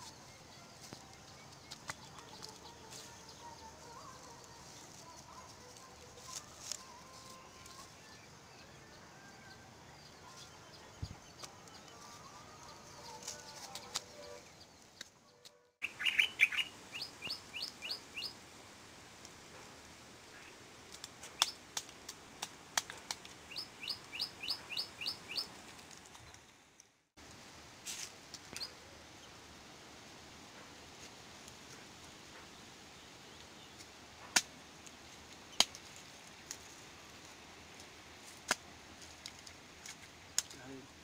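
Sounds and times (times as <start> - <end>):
bird chirping: 7.0 - 18.4, 23.5 - 25.6.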